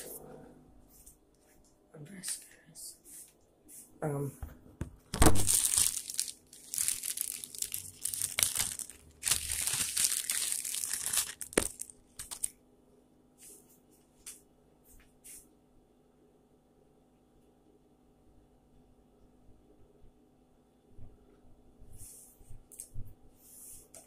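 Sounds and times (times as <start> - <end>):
plastic bag crinkling: 5.2 - 12.5.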